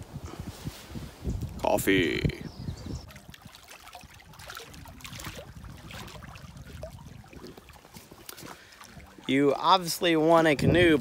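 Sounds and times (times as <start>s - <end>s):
water trickling and lapping: 2.6s - 11.0s
water dripping: 3.1s - 10.1s.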